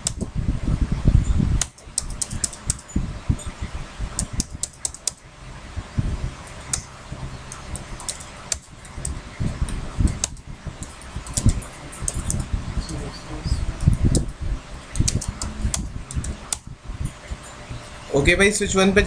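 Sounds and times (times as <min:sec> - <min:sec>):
fan humming: 0:00.0 - 0:19.0
keyboard typing: 0:01.6 - 0:03.5, 0:04.1 - 0:05.3, 0:06.4 - 0:17.9.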